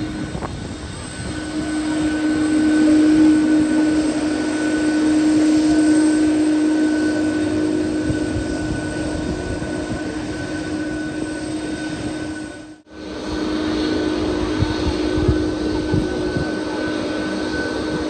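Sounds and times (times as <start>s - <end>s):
jet engines taxiing: 0.0s - 18.0s.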